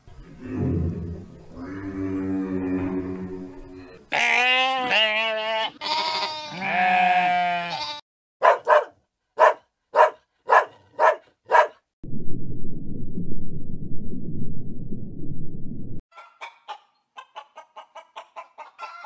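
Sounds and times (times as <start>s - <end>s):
animal bleating: 4.1s - 8.0s
dog barking: 8.4s - 11.8s.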